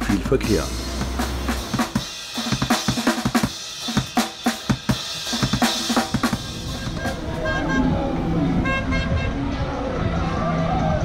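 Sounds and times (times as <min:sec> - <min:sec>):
snare drum strikes: 0:00.0 - 0:06.4
bass drum strikes: 0:00.0 - 0:07.2.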